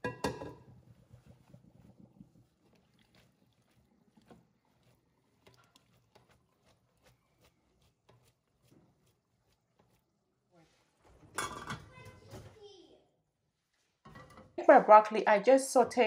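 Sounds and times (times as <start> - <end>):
spaghetti tossed in a bowl: 0.2 - 10.2.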